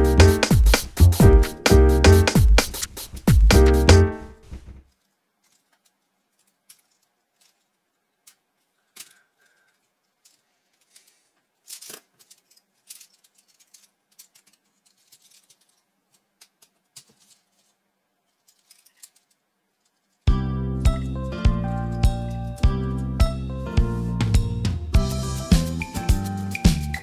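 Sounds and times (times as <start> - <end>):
plastic pieces clicking and rattling: 4.9 - 20.2.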